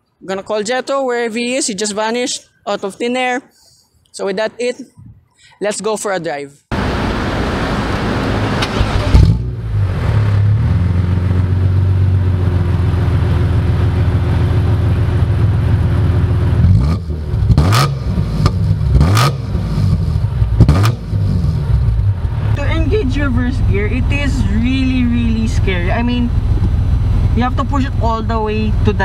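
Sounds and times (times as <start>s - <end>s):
car engine starting and revving: 6.7s - 29.0s.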